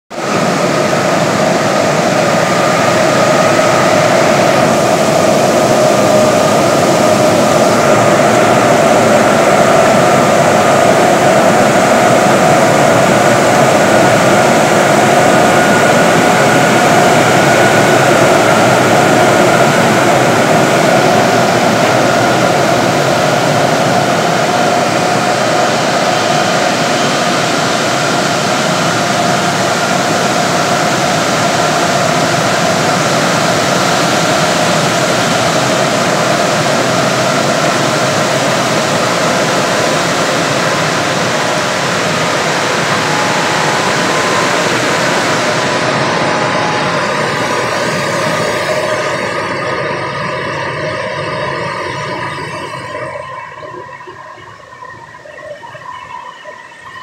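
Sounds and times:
cooling fans rushing air: 0:00.2 - 0:52.3
steady hum tones: 0:00.2 - 0:57.0.

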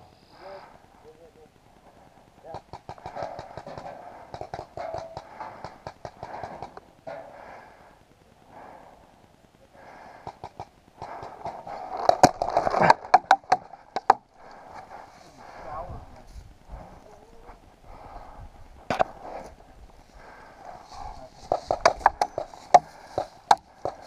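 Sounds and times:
heavy breathing: 0:00.0 - 0:01.2, 0:03.0 - 0:24.0
sharp cracks: 0:01.6 - 0:08.3, 0:10.0 - 0:15.1
clicks and rustles of movement: 0:10.2 - 0:15.6, 0:18.8 - 0:24.0.

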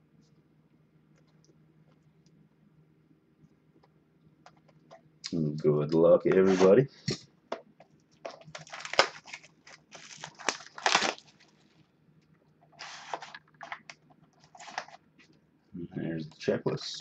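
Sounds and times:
plastic wrap crinkling and tearing: 0:08.2 - 0:11.8, 0:12.7 - 0:15.0.

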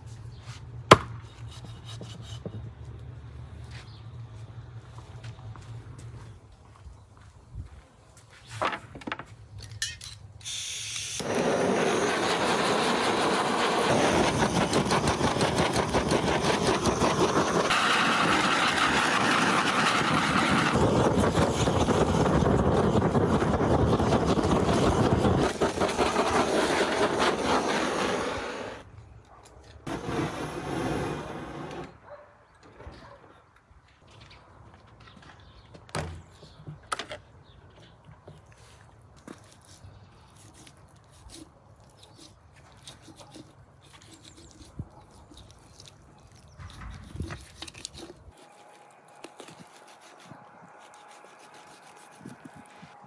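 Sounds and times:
gas torch flame hissing: 0:10.5 - 0:28.8, 0:29.9 - 0:31.9.

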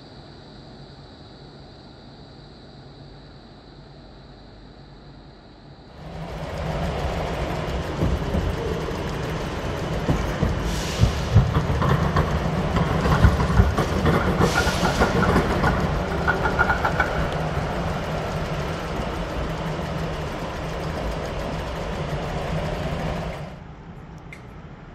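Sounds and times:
tram wheels clattering on rails: 0:05.9 - 0:24.6.

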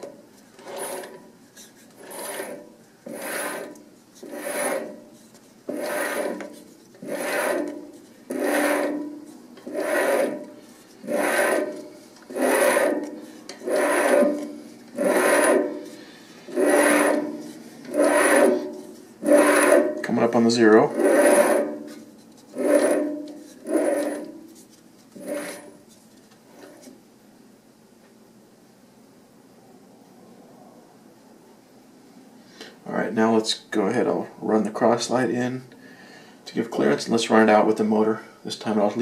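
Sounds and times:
threading tool scraping brass: 0:00.0 - 0:25.9.

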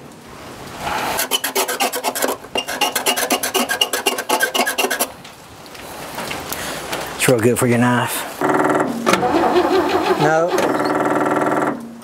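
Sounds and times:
engine cranking with raspy clicks: 0:01.2 - 0:05.1, 0:08.4 - 0:12.0.

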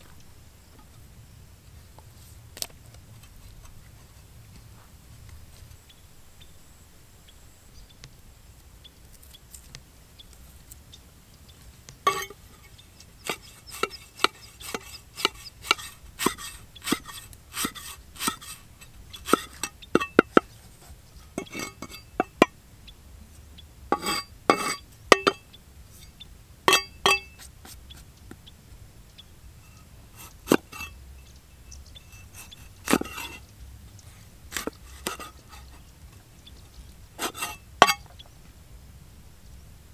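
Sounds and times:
cleaver chopping on wooden block: 0:13.2 - 0:18.6.

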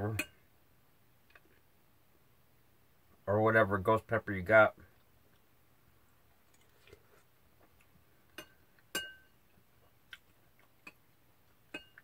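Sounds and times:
spoon clinking glass bowl: 0:08.4 - 0:09.4, 0:11.7 - 0:12.0.

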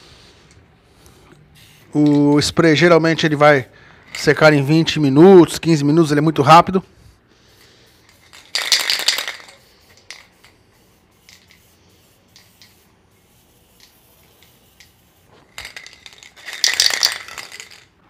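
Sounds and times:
aerosol spray can hissing: 0:01.0 - 0:02.0, 0:07.4 - 0:15.9.

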